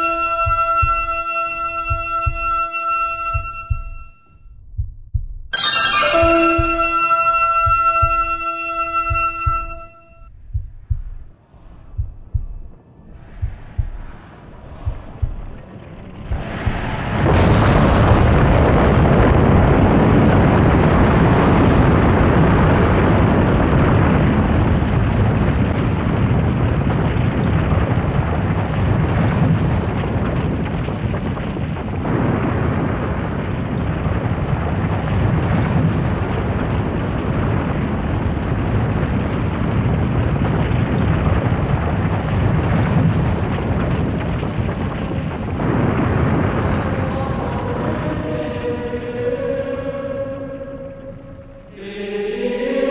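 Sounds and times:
loud low rushing noise: 0:10.3 - 0:50.0.

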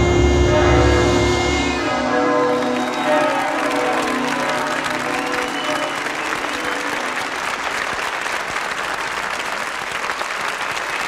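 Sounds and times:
music chord held: 0:00.0 - 0:07.3
audience applauding: 0:02.0 - 0:11.0.

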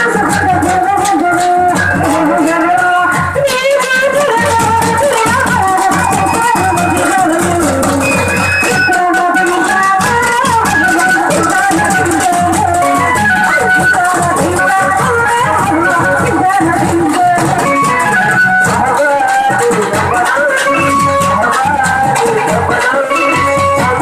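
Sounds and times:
large drums beaten with sticks: 0:00.0 - 0:03.4, 0:04.4 - 0:24.0
man singing into a microphone: 0:00.0 - 0:13.2, 0:14.0 - 0:24.0.

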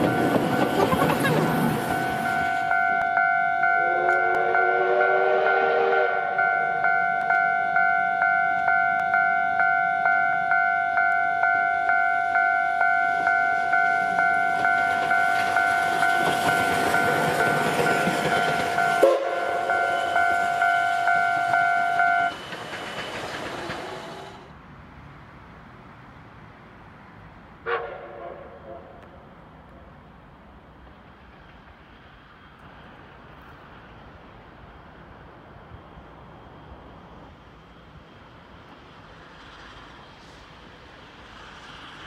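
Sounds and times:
steam locomotive rushing: 0:00.0 - 0:25.0, 0:27.5 - 0:42.0
level crossing bell ringing: 0:01.9 - 0:04.7, 0:06.4 - 0:22.3.

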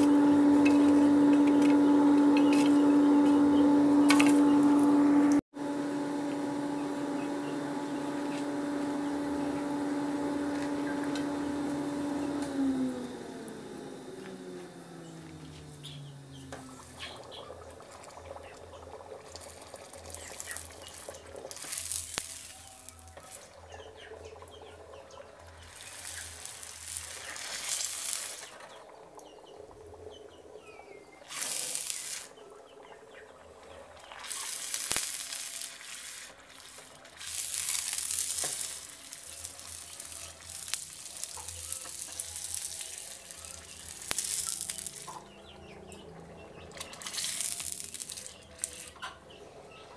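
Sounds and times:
hot steel hissing in water: 0:19.2 - 0:23.6, 0:25.6 - 0:28.6, 0:31.2 - 0:32.4, 0:34.2 - 0:45.2, 0:47.0 - 0:49.0.

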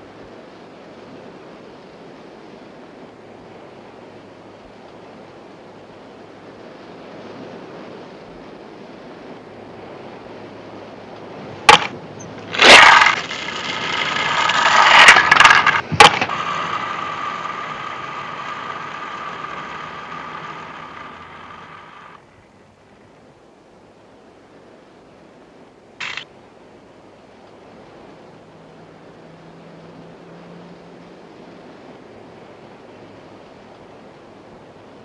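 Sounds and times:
skateboards rolling on asphalt: 0:11.4 - 0:22.4, 0:26.0 - 0:26.3
skateboards clacking on pavement: 0:11.7 - 0:22.2, 0:26.0 - 0:26.2.

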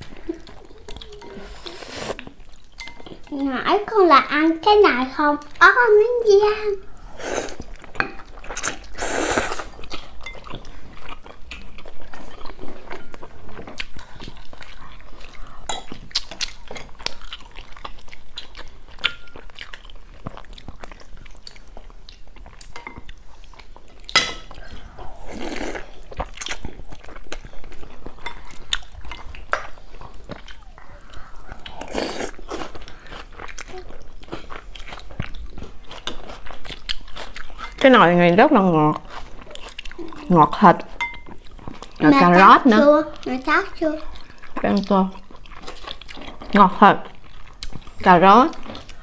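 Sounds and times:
chewing and wet mouth sounds: 0:00.0 - 0:49.0
slurping noodles: 0:01.2 - 0:02.3, 0:07.0 - 0:07.7, 0:08.6 - 0:09.8, 0:24.9 - 0:26.0, 0:31.2 - 0:33.3.

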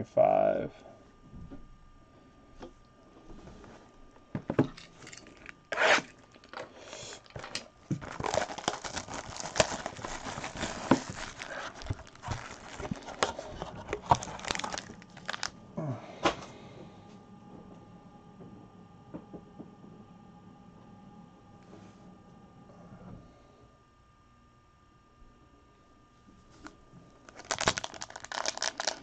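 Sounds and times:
plastic shrink-wrap crinkling: 0:05.4 - 0:15.6, 0:27.2 - 0:29.0.

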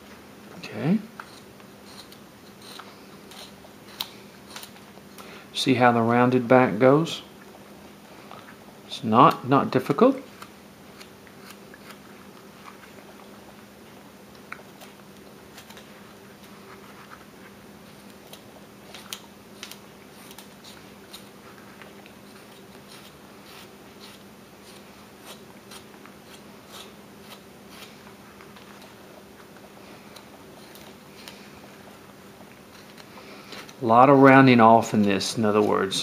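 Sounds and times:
steady low hum: 0:00.0 - 0:36.0
knife carving wood: 0:01.1 - 0:04.8, 0:10.3 - 0:12.8, 0:17.9 - 0:21.4, 0:22.0 - 0:32.0, 0:32.6 - 0:33.8.

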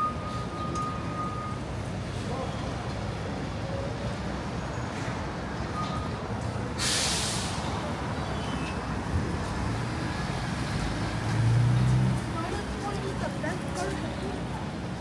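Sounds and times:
city street traffic rumble: 0:00.0 - 0:15.0
air brakes hissing: 0:06.8 - 0:07.8.

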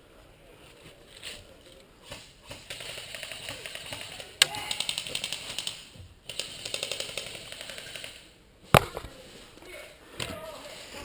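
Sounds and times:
airsoft rifle full-auto bursts: 0:02.6 - 0:08.3.

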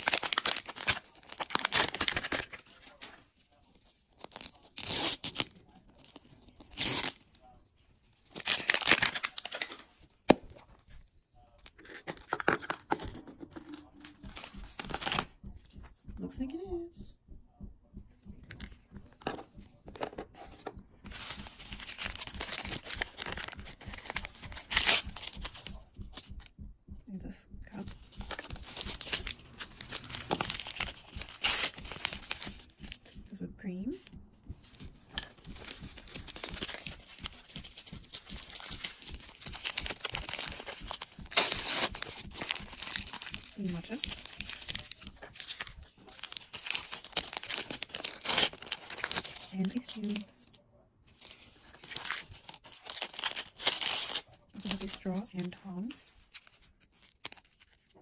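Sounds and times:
plastic wrapper tearing: 0:00.0 - 0:02.7, 0:04.2 - 0:07.3, 0:08.3 - 0:09.9, 0:21.1 - 0:25.8, 0:28.1 - 0:33.2, 0:35.1 - 0:50.5, 0:51.2 - 0:58.0.

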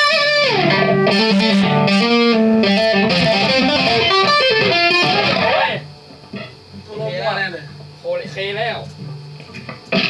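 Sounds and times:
electric guitar lead line: 0:00.0 - 0:06.6, 0:09.6 - 0:10.0.

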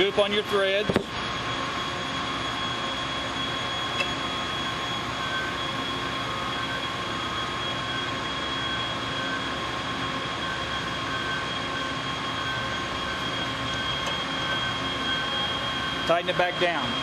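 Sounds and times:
high whine: 0:00.0 - 0:17.0
machinery hum: 0:00.0 - 0:17.0.

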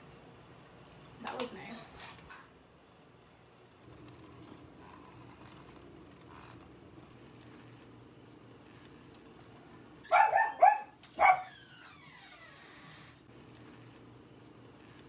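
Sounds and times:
dog barking high-pitched: 0:10.0 - 0:11.6.

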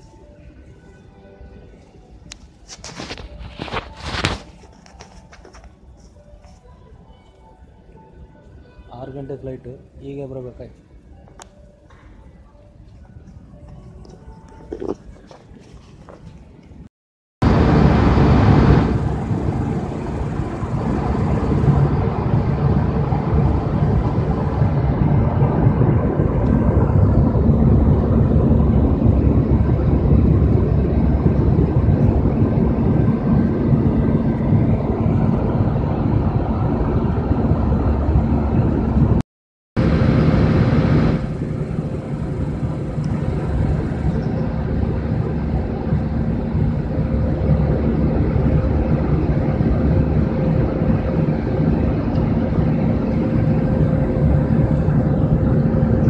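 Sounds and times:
airliner cabin drone: 0:00.0 - 0:39.2, 0:39.8 - 0:56.0
low steady hums: 0:00.0 - 0:39.2, 0:39.8 - 0:56.0.

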